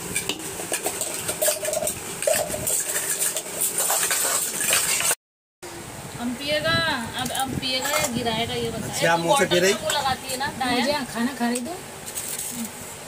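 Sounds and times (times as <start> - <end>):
metal spoon scraping a pot: 0.0 - 5.2, 7.7 - 8.2
steel plates clattering: 0.2 - 5.2.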